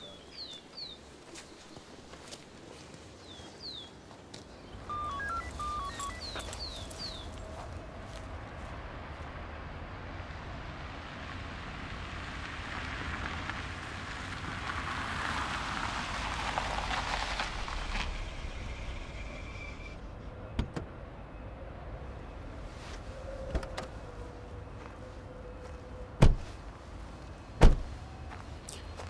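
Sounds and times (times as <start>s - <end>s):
car driving on slushy road: 7.1s - 20.0s.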